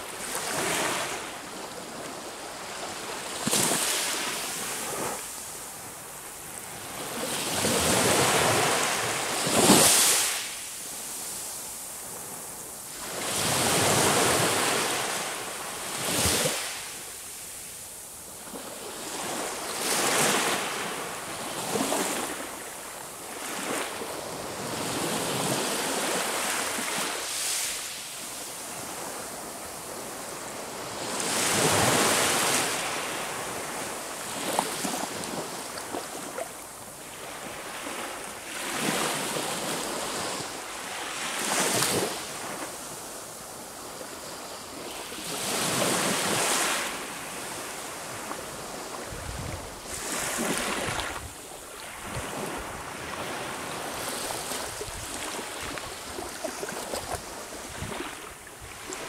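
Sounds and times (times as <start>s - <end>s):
sea waves breaking on shore: 18.4s - 43.7s, 44.3s - 59.0s.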